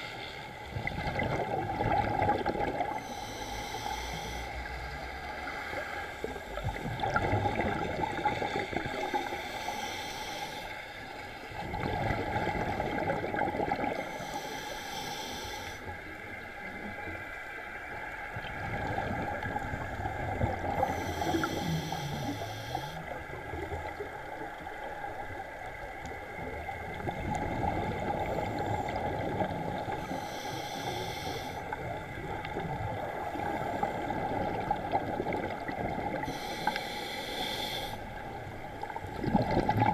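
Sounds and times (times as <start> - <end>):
exhaled air bubbling: 0.7 - 3.7, 4.5 - 9.8, 11.5 - 14.3, 18.4 - 24.2, 26.5 - 30.2, 31.6 - 39.9
scuba regulator inhale hiss: 2.9 - 4.9, 9.0 - 11.0, 14.0 - 16.0, 20.8 - 23.1, 30.0 - 31.8, 36.2 - 38.1.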